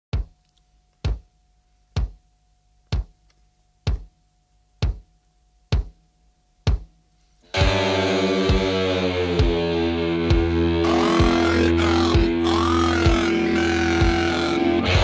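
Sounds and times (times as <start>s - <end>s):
booming drum beats: 3.9s - 4.1s, 4.8s - 5.1s, 5.7s - 6.0s, 6.7s - 6.9s, 7.6s - 15.0s
distorted electric guitar chord: 7.5s - 15.0s.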